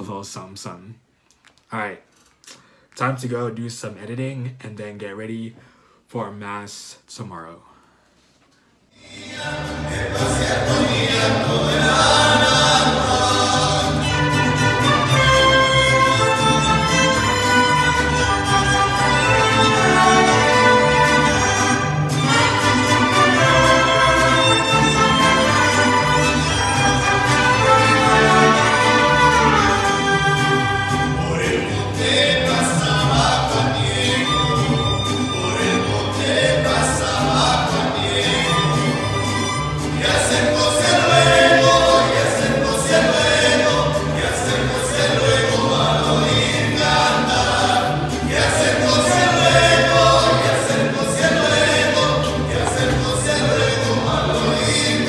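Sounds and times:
mariachi band playing: 0:09.0 - 0:55.0
musicians singing: 0:09.0 - 0:55.0
violin and guitars: 0:13.0 - 0:55.0.

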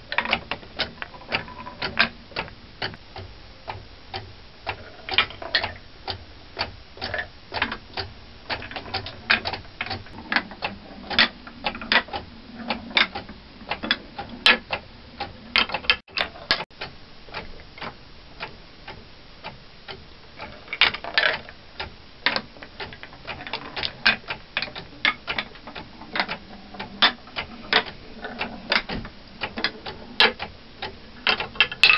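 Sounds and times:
marble lifter clicks and knocks: 0:00.1 - 0:03.0, 0:04.7 - 0:05.8, 0:07.0 - 0:14.8, 0:20.4 - 0:21.5, 0:22.2 - 0:31.9.

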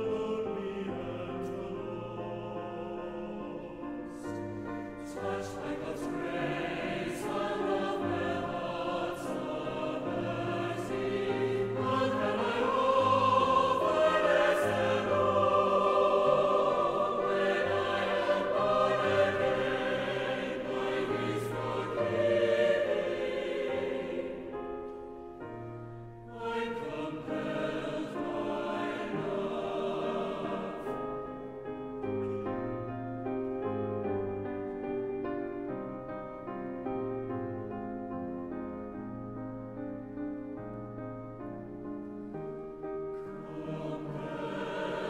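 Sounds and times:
choir singing: 0:00.0 - 0:32.9, 0:43.1 - 0:45.0.

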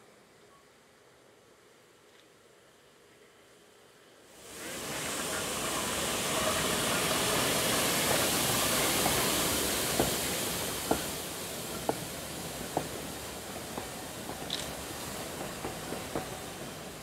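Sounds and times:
steam locomotive hissing: 0:04.3 - 0:17.0
train wheels clicking over rails: 0:04.9 - 0:17.0.

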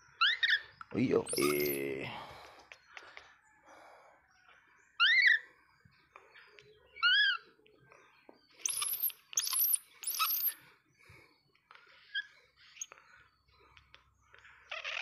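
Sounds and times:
baby monkey crying: 0:01.3 - 0:01.8, 0:05.0 - 0:05.4, 0:07.0 - 0:07.5, 0:14.7 - 0:15.0.

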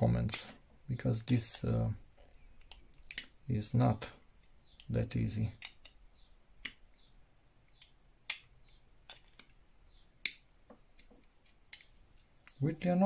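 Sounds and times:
plastic clips snapping: 0:02.6 - 0:03.4, 0:04.4 - 0:09.6, 0:10.2 - 0:12.6.

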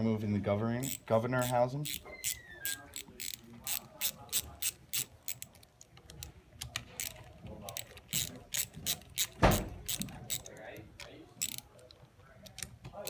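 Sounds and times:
hand ratchet clicking: 0:00.8 - 0:10.5, 0:11.4 - 0:11.7.

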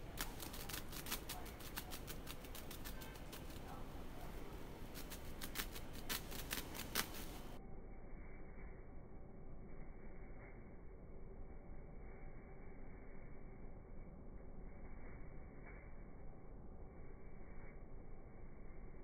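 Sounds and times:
wigs rustling and clicking: 0:00.2 - 0:04.3, 0:04.9 - 0:07.6.

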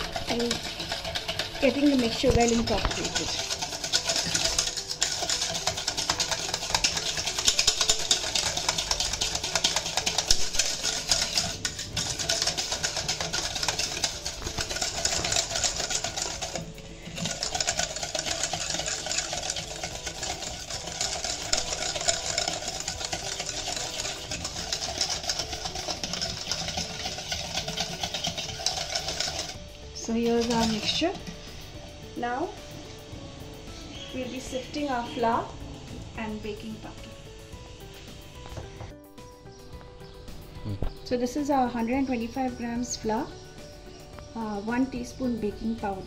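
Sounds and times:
whisk clattering in metal bowl: 0:00.0 - 0:31.4.

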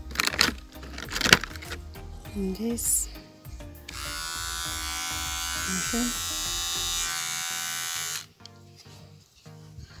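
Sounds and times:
hair trimmer buzzing: 0:03.9 - 0:08.3.

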